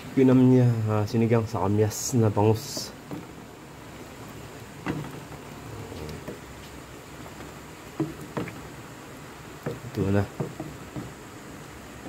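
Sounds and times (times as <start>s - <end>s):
pot simmering on stove: 0.1s - 12.0s
light knocks: 4.8s - 5.4s, 6.0s - 8.7s, 9.6s - 11.2s.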